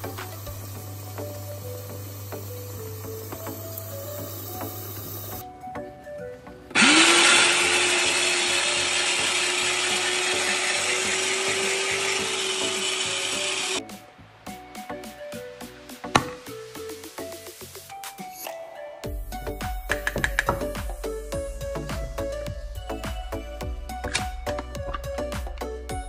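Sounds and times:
electric grater motor: 6.7s - 13.8s.

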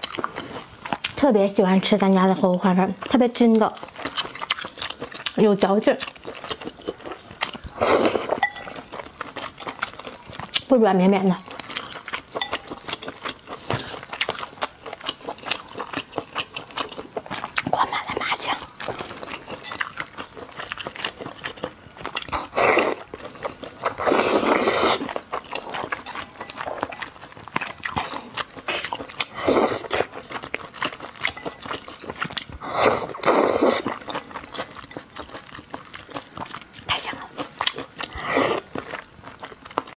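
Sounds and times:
wet chewing and smacking: 0.0s - 1.3s, 2.4s - 10.7s, 11.3s - 39.9s.

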